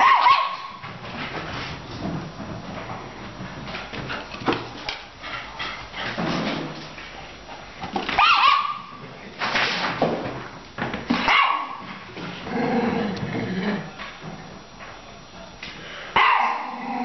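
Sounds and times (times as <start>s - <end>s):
dog barking: 0.0s - 0.8s, 8.2s - 9.0s, 11.2s - 11.9s, 16.2s - 16.8s.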